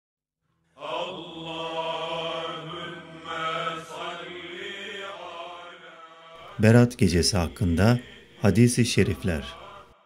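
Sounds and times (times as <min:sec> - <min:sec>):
man chanting: 0:06.4 - 0:09.8.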